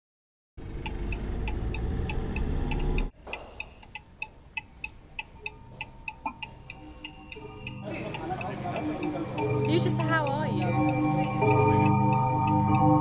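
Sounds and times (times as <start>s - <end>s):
clock-like ticking pulse: 0.7s - 13.0s.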